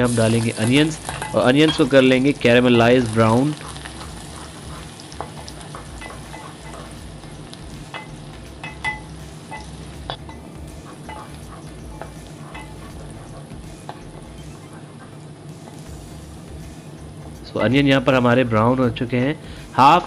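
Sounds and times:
onions sizzling in hot fat: 0:00.0 - 0:20.0
wooden spatula stirring in metal pot: 0:00.4 - 0:15.9.

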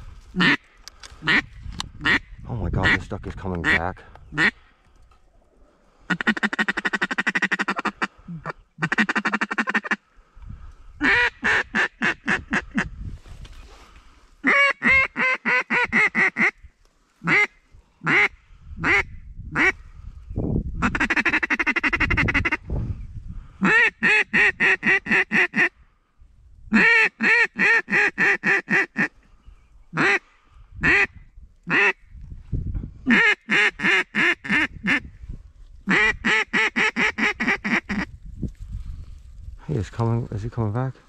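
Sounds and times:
duck call buzzy rapid notes: 0:00.4 - 0:00.6, 0:02.0 - 0:02.2, 0:06.1 - 0:10.0, 0:11.0 - 0:12.9, 0:14.4 - 0:16.6, 0:18.1 - 0:19.8, 0:20.8 - 0:22.6, 0:23.6 - 0:25.7, 0:26.8 - 0:29.1, 0:30.0 - 0:30.2, 0:30.8 - 0:31.1, 0:31.7 - 0:32.0, 0:33.1 - 0:35.1, 0:35.9 - 0:38.1
duck call quacking: 0:00.4 - 0:00.6, 0:01.2 - 0:03.0, 0:04.4 - 0:04.6, 0:06.1 - 0:10.0, 0:11.0 - 0:12.9, 0:14.4 - 0:16.6, 0:17.2 - 0:19.8, 0:20.8 - 0:22.6, 0:23.6 - 0:25.7, 0:26.7 - 0:29.1, 0:29.9 - 0:30.2, 0:30.8 - 0:31.1, 0:31.7 - 0:32.0, 0:33.1 - 0:35.1, 0:35.9 - 0:38.1.

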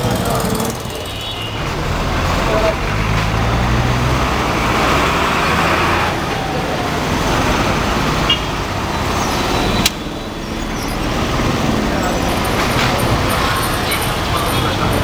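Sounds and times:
road traffic din: 0:00.0 - 0:15.0.

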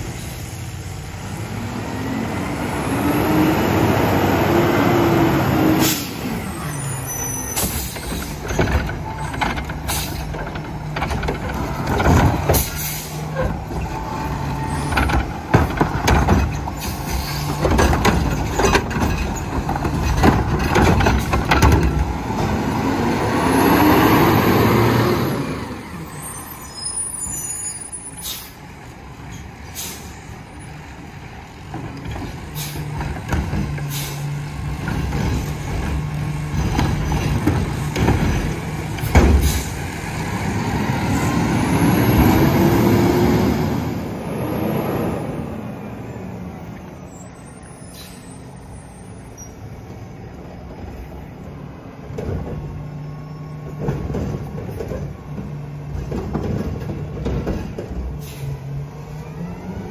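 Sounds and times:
garbage truck engine revving: 0:00.4 - 0:26.2, 0:30.7 - 0:45.9
metal bangs and clanks: 0:07.6 - 0:22.6, 0:31.8 - 0:39.9.

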